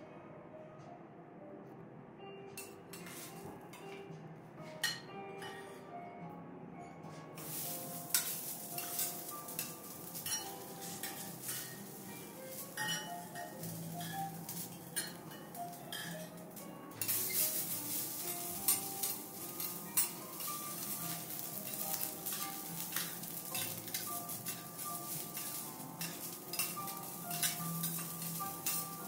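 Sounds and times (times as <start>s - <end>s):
vegetables sizzling on a griddle: 7.4s - 29.0s.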